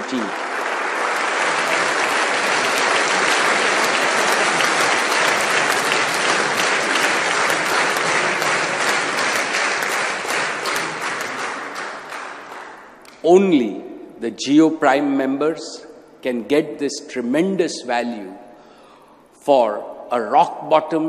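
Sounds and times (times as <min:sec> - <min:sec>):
audience applauding: 0:00.0 - 0:13.1.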